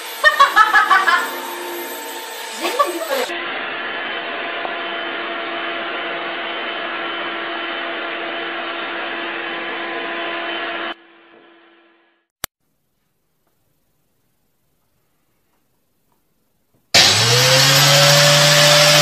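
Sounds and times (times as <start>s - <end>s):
vacuum cleaner humming: 0.0s - 11.6s, 17.0s - 19.0s.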